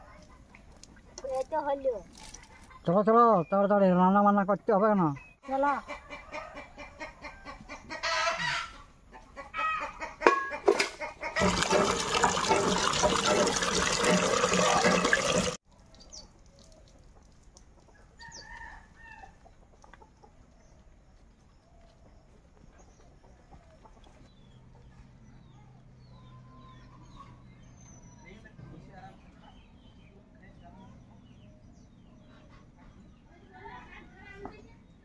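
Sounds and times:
chickens clucking: 5.1s - 15.5s
rooster crowing: 18.2s - 19.4s.

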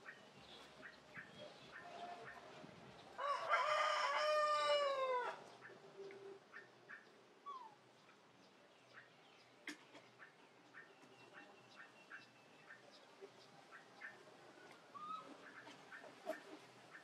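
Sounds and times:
rooster crowing: 3.2s - 5.4s.

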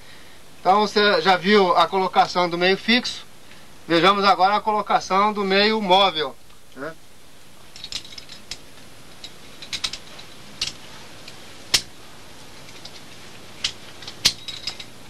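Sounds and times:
metal climbing hardware clinking: 7.7s - 15.0s.

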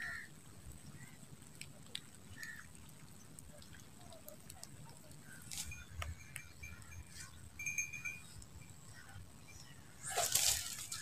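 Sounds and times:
faint steady high tone: 5.6s - 11.0s.

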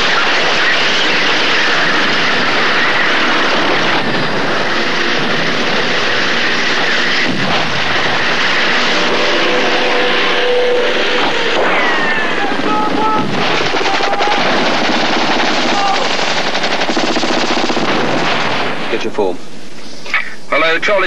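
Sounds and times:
battle noise din: 6.7s - 16.6s
machine-gun fire bursts: 13.3s - 18.9s.

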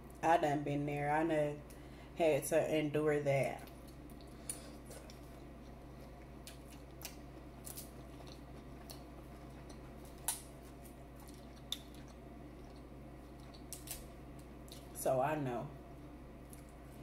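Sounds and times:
seafood shells cracking: 6.5s - 14.9s.

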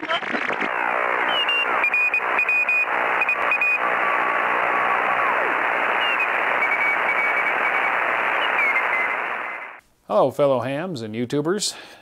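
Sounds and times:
radio static hiss: 0.0s - 9.8s
whistling carriers sliding in pitch: 0.7s - 9.8s.

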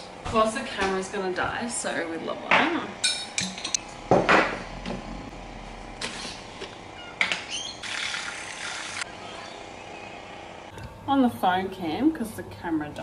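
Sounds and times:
milk frother whirring: 7.8s - 9.6s.

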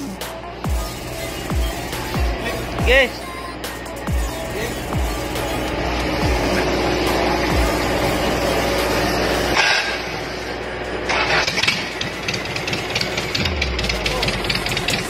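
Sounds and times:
diesel engine clattering: 0.0s - 15.0s
starter motor cranking: 11.0s - 15.0s.

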